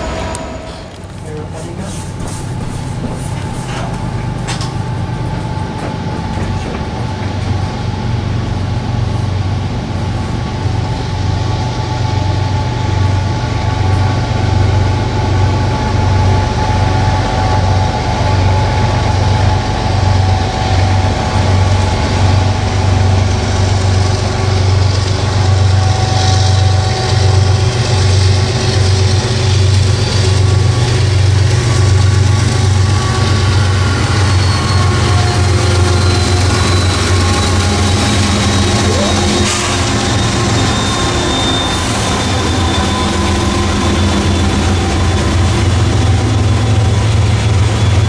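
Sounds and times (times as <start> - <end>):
diesel locomotive engine throb: 0.0 - 48.0.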